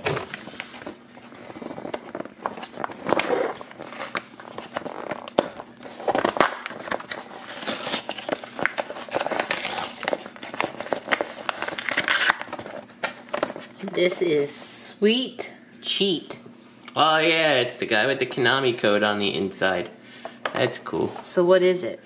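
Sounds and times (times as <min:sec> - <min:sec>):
cardboard and plastic tearing: 0:00.0 - 0:13.9.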